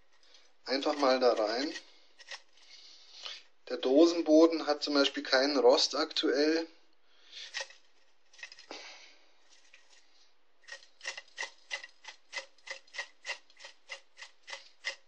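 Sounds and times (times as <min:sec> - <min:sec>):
metal tin rubbing on ceramic: 0:00.0 - 0:02.7, 0:07.4 - 0:08.6, 0:09.5 - 0:15.0
tobacco rustling: 0:00.0 - 0:03.4, 0:07.3 - 0:08.8, 0:09.4 - 0:15.0.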